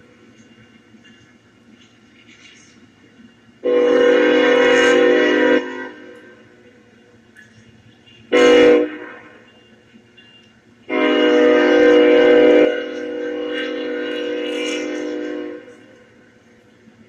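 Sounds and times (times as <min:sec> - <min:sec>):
locomotive air horn blasts: 0:03.6 - 0:06.6, 0:08.3 - 0:09.6, 0:10.9 - 0:16.2.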